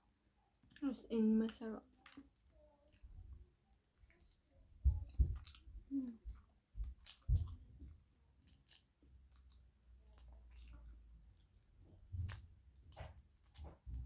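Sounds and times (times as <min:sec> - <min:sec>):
chewing: 0:03.8 - 0:14.0
crayfish shells cracking: 0:08.4 - 0:10.8, 0:12.2 - 0:14.0.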